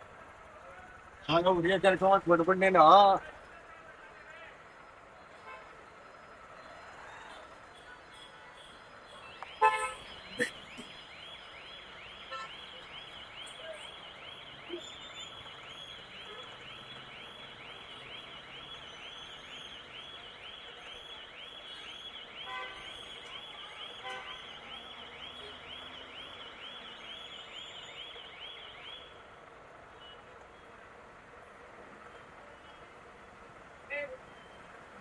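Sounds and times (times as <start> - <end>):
vehicle horn honk: 9.5 - 10.1, 22.4 - 23.0, 24.0 - 24.5.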